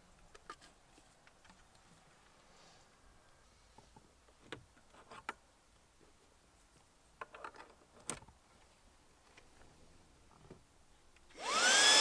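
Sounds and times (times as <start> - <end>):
plastic parts clicking and knocking: 7.2 - 8.4.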